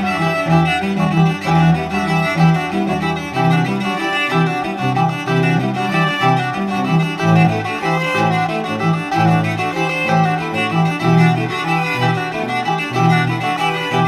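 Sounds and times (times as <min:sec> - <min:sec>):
bowed strings music: 0:00.0 - 0:14.0.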